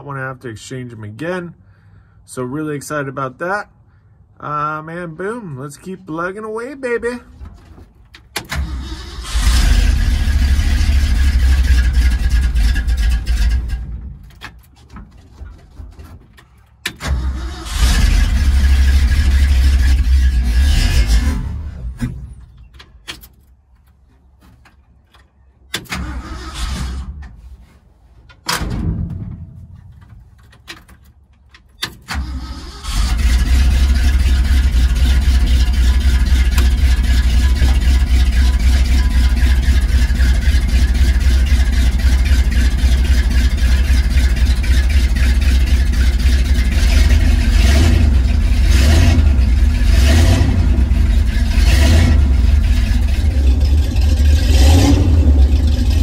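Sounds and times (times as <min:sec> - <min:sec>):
truck engine running: 0:07.0 - 0:14.4, 0:32.8 - 0:56.0
truck engine cranking and starting: 0:07.2 - 0:27.5, 0:28.3 - 0:56.0.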